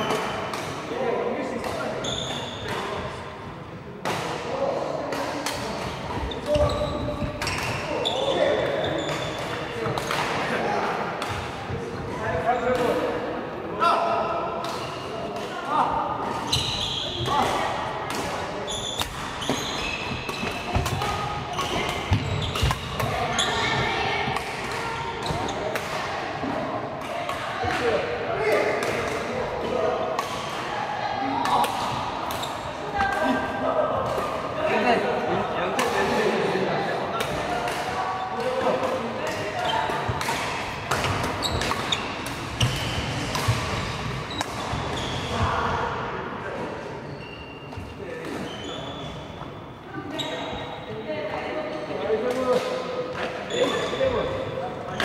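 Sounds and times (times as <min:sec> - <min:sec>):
chatter in echoing hall: 0:00.0 - 0:55.0
shoes squeaking on court: 0:02.0 - 0:02.7, 0:06.0 - 0:09.6, 0:16.4 - 0:17.3, 0:18.6 - 0:23.9, 0:40.9 - 0:45.4, 0:47.0 - 0:51.0, 0:53.2 - 0:55.0
racket striking shuttlecock: 0:19.0 - 0:23.2, 0:37.2 - 0:45.0.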